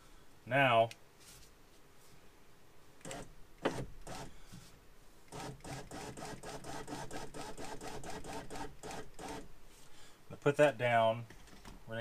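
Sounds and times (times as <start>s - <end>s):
power window motor whirring: 3.0s - 4.3s.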